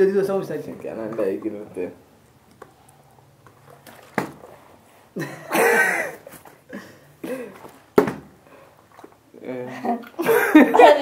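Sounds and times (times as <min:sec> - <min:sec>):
person coughing: 0:05.2 - 0:07.6.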